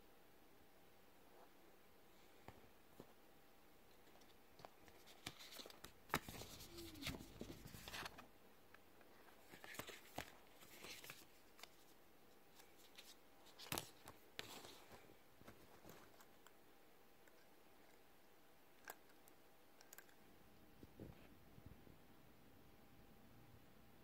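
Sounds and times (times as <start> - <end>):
paper and cardboard rustling: 4.0 - 8.2, 9.2 - 16.4.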